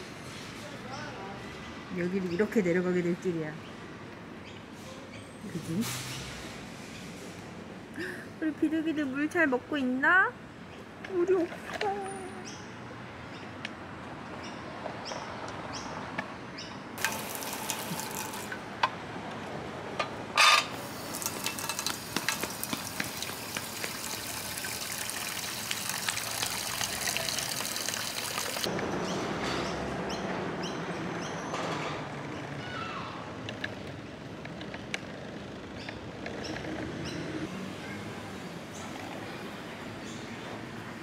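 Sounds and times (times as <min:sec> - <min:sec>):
water pouring into a dish: 0:17.0 - 0:18.6, 0:20.8 - 0:28.7.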